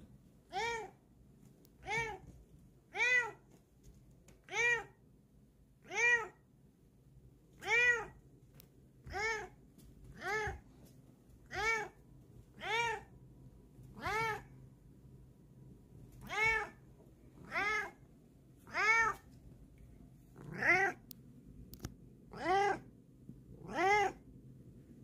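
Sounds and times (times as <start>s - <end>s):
cat meowing: 0.5s - 1.0s, 2.9s - 3.4s, 4.5s - 5.0s, 5.8s - 6.4s, 7.6s - 8.2s, 9.0s - 9.6s, 10.2s - 10.6s, 11.5s - 12.0s, 12.6s - 13.1s, 14.0s - 14.5s, 16.2s - 16.8s, 17.4s - 18.0s, 18.7s - 19.2s, 20.4s - 21.0s, 22.3s - 22.9s, 23.6s - 24.2s.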